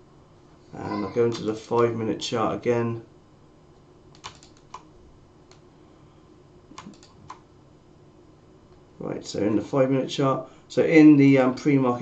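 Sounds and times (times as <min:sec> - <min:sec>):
keyboard key clicks: 0:04.1 - 0:04.9.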